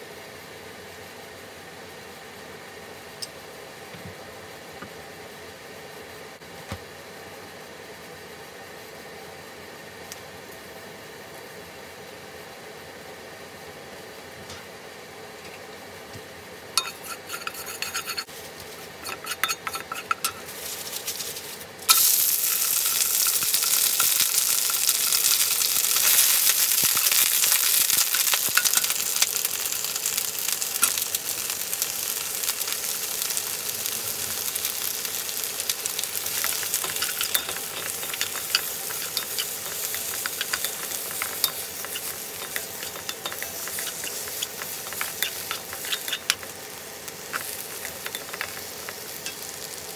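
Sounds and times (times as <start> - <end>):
vegetables sizzling in oil: 16.5 - 49.9.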